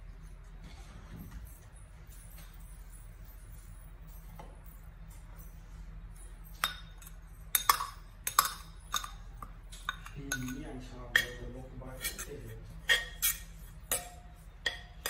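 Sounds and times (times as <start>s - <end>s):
low steady hum: 0.0s - 15.0s
metal spoon scraping ceramic bowl: 6.8s - 15.0s.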